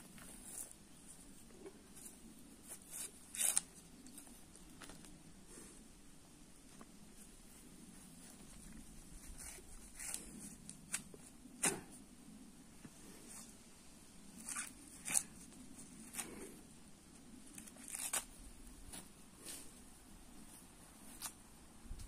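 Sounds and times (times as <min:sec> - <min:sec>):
corn husks tearing: 0:01.9 - 0:05.1, 0:14.4 - 0:16.6, 0:17.5 - 0:18.4.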